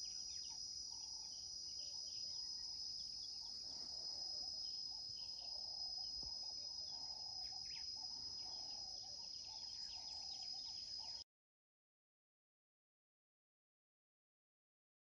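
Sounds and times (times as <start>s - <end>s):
crickets trilling: 0.0s - 11.2s.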